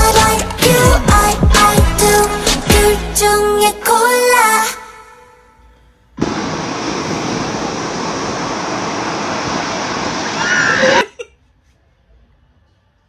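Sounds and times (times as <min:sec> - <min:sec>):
ocean waves breaking: 0:06.2 - 0:11.0.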